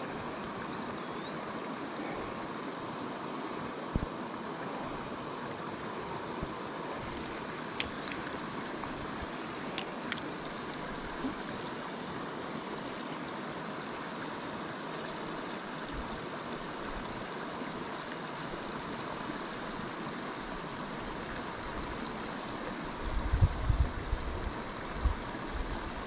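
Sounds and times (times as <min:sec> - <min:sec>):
stream water flowing: 0:00.0 - 0:26.0
light clicks: 0:07.1 - 0:08.3, 0:09.7 - 0:10.9.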